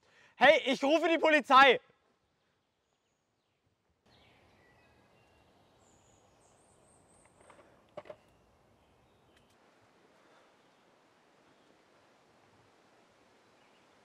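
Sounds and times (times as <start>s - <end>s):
faint woodland ambience: 0.0s - 14.0s.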